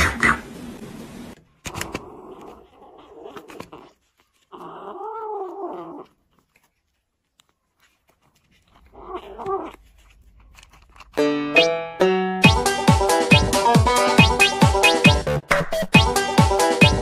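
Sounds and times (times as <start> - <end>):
kitten growling yowl: 1.7 - 6.4, 8.7 - 10.1.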